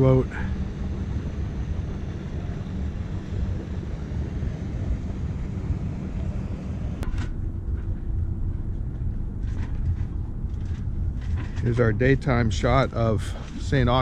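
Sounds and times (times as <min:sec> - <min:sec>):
boat engine rumbling: 0:00.0 - 0:14.0
wind noise on microphone: 0:00.0 - 0:14.0.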